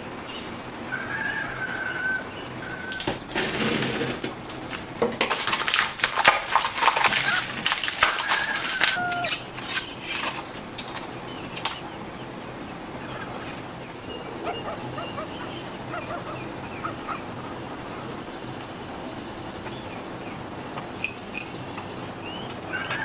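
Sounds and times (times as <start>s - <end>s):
plastic packaging crinkling: 4.5s - 11.8s.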